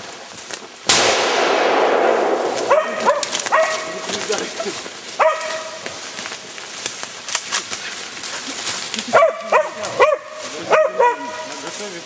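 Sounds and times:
brush rustling: 0.0s - 12.0s
snaps in undergrowth: 2.4s - 9.1s
dog barking: 2.7s - 4.1s, 5.2s - 5.8s, 9.1s - 11.6s.

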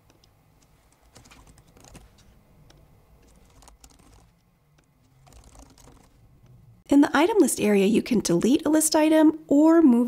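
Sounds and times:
keyboard typing: 0.0s - 6.2s.

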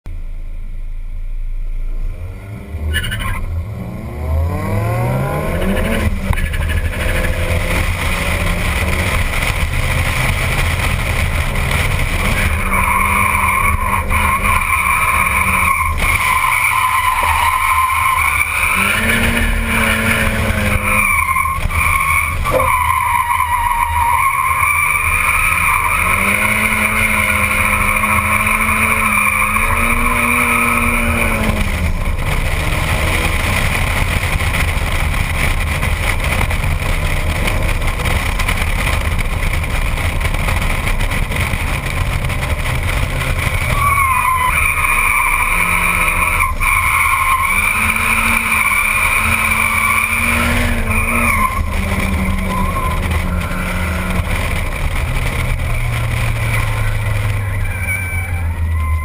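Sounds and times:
car engine revving: 1.5s - 59.0s
tyres squealing: 12.1s - 32.2s, 43.1s - 54.8s.

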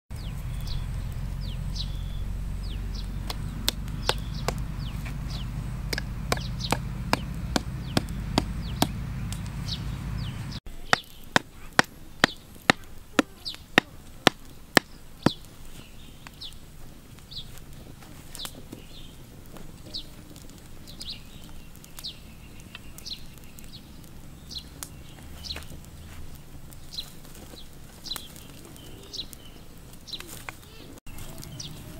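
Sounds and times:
low rumble: 0.1s - 10.6s
birds chirping: 0.1s - 31.9s
hatchet blows on wooden stake: 5.8s - 9.5s, 10.8s - 15.5s.

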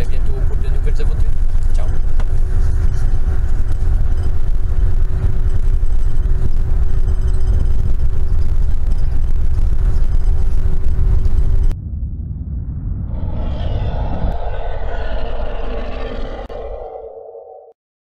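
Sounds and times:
bus engine and road rumble: 0.0s - 16.0s
thin steady whine: 0.0s - 17.7s.

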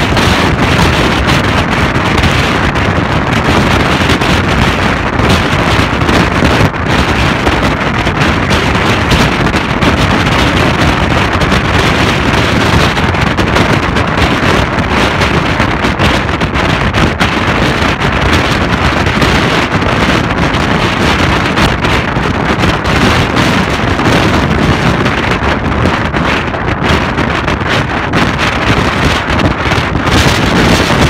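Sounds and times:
storm surf breaking on shore: 0.0s - 31.0s
wind buffeting microphone: 0.0s - 31.0s.

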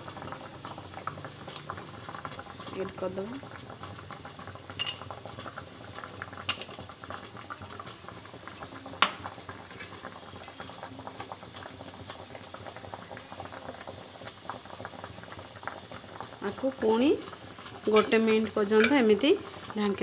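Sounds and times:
water boiling and bubbling: 0.0s - 20.0s
spoon clinking against steel: 1.5s - 2.0s, 2.6s - 3.6s, 4.8s - 10.6s, 12.8s - 16.0s, 16.9s - 19.2s.

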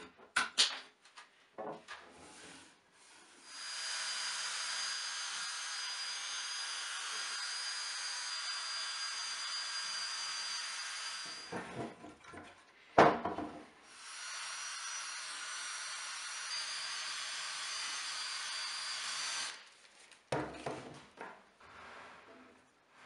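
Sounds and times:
drill with wire brush whirring: 3.4s - 11.6s, 13.9s - 19.6s
wooden slab thud: 11.5s - 13.6s.

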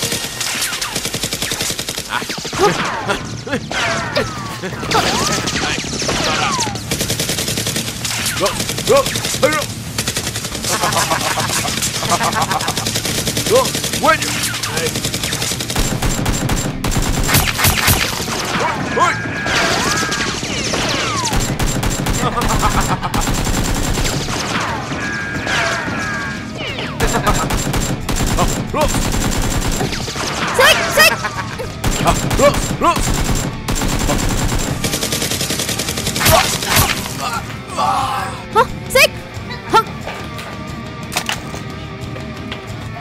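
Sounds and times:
toy blaster gunfire: 13.5s - 18.2s, 36.2s - 37.1s.

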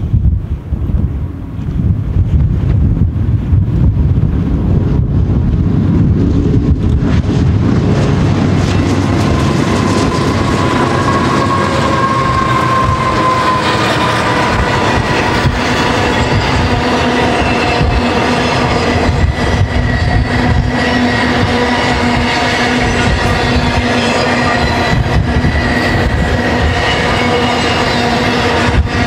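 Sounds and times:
diesel locomotives running: 0.0s - 29.0s
train wheel clatter: 6.2s - 29.0s
high wheel squeal: 8.6s - 29.0s.

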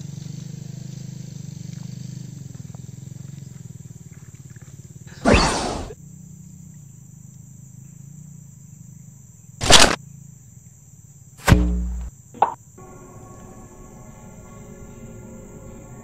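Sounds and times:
high insect trill: 0.0s - 16.0s
falling whoosh: 5.2s - 6.0s
sharp hits with low rumble: 11.4s - 12.1s
short pitched blip: 11.4s - 12.6s
music: 12.8s - 16.0s.

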